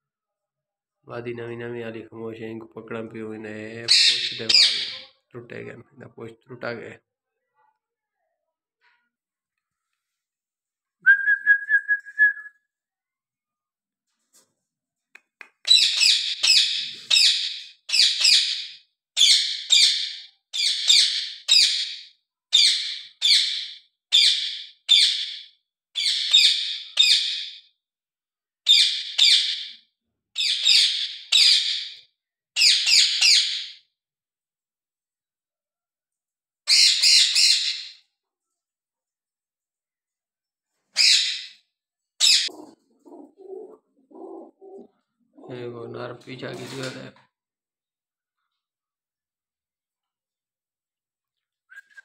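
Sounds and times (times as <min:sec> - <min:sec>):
parrot screeching: 0:03.9 - 0:05.1, 0:15.7 - 0:22.0, 0:22.6 - 0:27.6, 0:30.4 - 0:32.0, 0:32.6 - 0:33.8, 0:36.7 - 0:38.0, 0:41.0 - 0:41.6, 0:42.2 - 0:42.8
parrot whistle: 0:11.0 - 0:12.6, 0:51.7 - 0:52.0.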